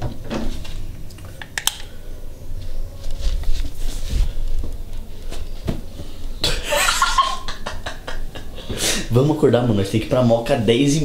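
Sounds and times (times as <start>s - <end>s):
rustling: 2.5s - 6.4s.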